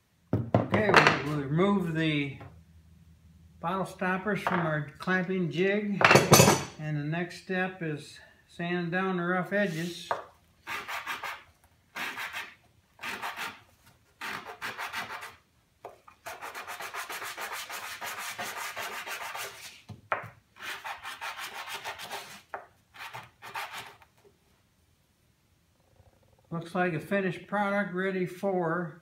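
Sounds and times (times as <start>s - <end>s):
wood sanding on sandpaper: 9.6s - 10.0s, 10.7s - 13.6s, 14.2s - 15.4s, 16.2s - 19.9s, 20.6s - 24.0s.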